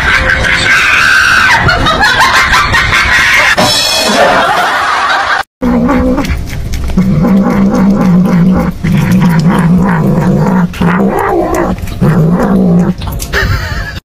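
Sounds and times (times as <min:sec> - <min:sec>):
cat growling: 0:05.6 - 0:13.2.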